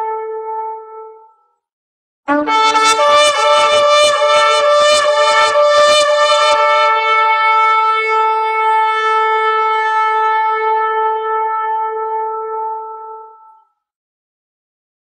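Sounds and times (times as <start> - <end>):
shofar blowing: 2.3 - 13.6.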